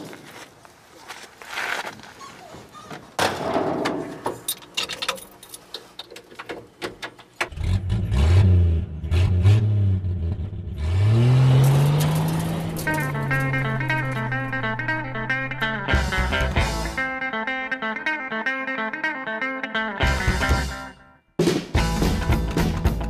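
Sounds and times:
motorcycle engine revving: 0:07.5 - 0:17.0.

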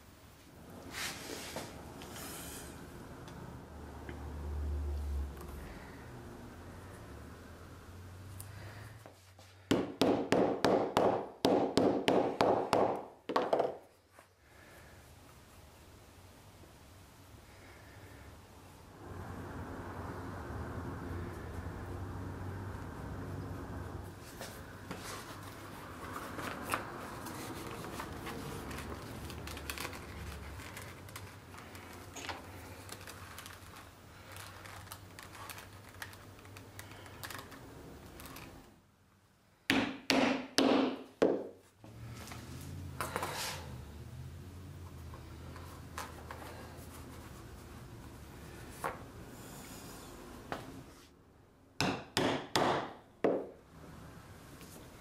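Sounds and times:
leather rubbing and handling: 0:24.0 - 0:38.7
maul striking leather punch: 0:51.8 - 0:53.4.

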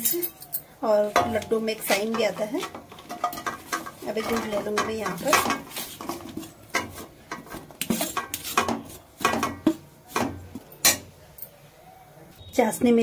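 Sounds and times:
metal spoon scraping metal plate: 0:01.2 - 0:09.8.

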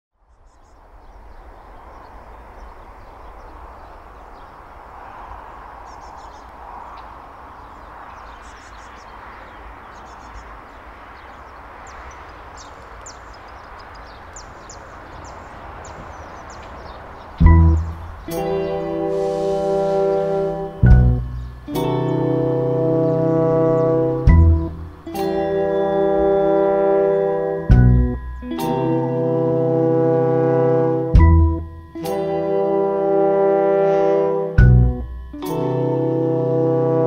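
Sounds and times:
birds chirping: 0:00.3 - 0:37.0
steady rushing background noise: 0:00.8 - 0:29.6.

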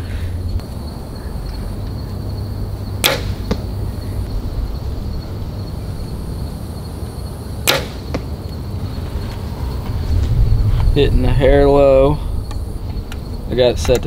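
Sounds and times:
bow string snap: 0:03.0 - 0:03.6
arrow hitting target: 0:03.0 - 0:03.7, 0:07.6 - 0:08.3.

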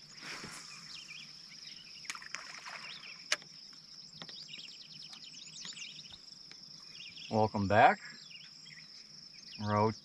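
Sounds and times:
birds chirping: 0:00.0 - 0:10.0
insect trill: 0:00.0 - 0:10.0
fishing rods and reels clicking: 0:02.0 - 0:04.4.

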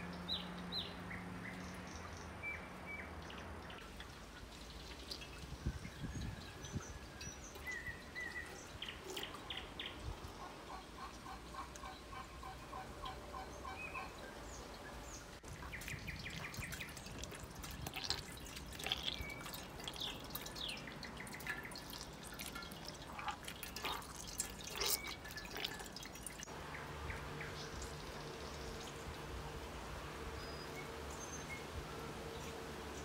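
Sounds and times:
whey dripping into a pot: 0:03.3 - 0:10.4, 0:15.4 - 0:30.9
small wet clicks: 0:15.5 - 0:26.5.

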